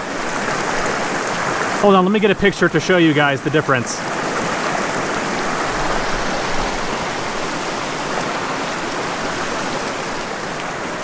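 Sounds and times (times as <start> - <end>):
stream running over rocks: 0.0 - 11.0.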